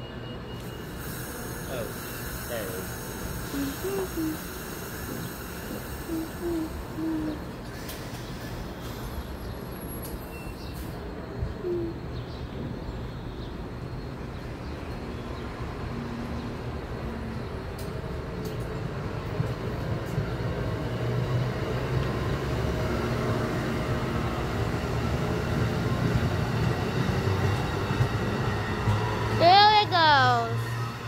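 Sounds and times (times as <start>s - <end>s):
train wheels rumbling on rails: 14.2s - 31.0s.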